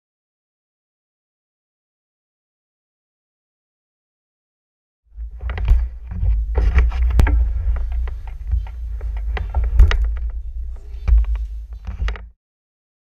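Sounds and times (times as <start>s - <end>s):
camera handling rumble: 5.2s - 12.3s
sharp clicks and knocks: 5.2s - 12.4s.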